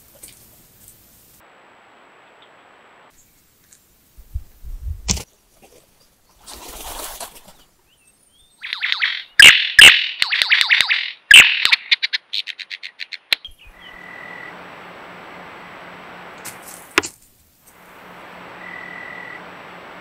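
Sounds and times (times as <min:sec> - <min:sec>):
steady low hiss: 0:00.0 - 0:06.4, 0:11.2 - 0:20.0.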